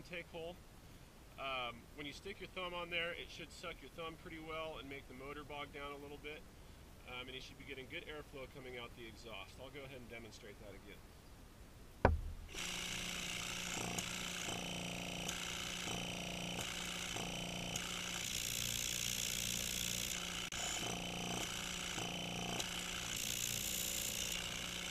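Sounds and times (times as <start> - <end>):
air compressor running: 12.4 - 24.9.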